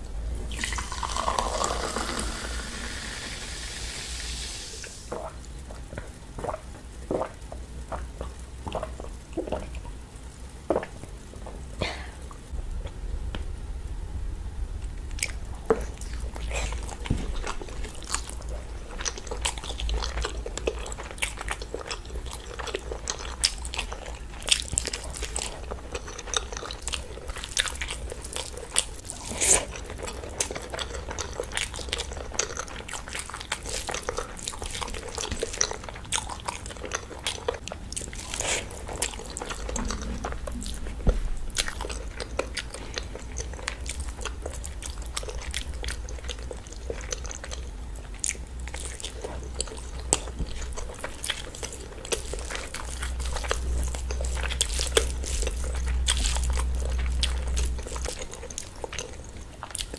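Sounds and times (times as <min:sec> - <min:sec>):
soda fizzing into a glass: 0:00.5 - 0:05.1
wet chewing: 0:15.0 - 0:59.9.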